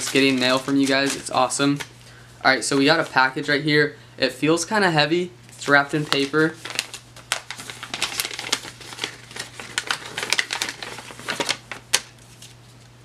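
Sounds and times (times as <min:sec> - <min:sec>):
paper wrapping crackling: 0:00.0 - 0:01.9, 0:02.6 - 0:03.5, 0:05.5 - 0:12.8.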